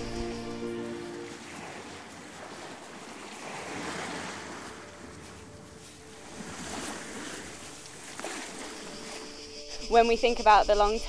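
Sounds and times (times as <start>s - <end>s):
waves breaking on beach: 0.0s - 9.4s.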